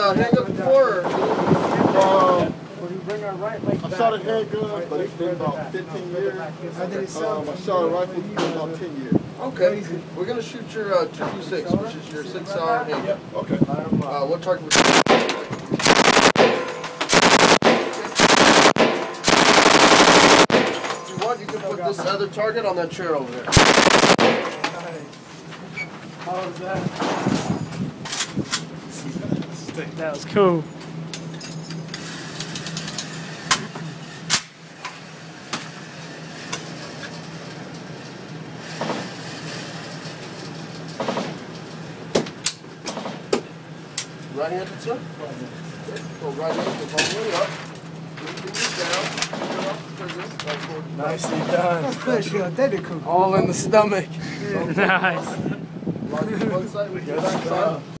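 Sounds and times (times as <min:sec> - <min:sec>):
ventilation hum: 0:00.0 - 0:58.0
gunshots: 0:14.7 - 0:21.0, 0:23.5 - 0:24.8
machine gun bursts: 0:14.7 - 0:21.1, 0:23.5 - 0:24.9.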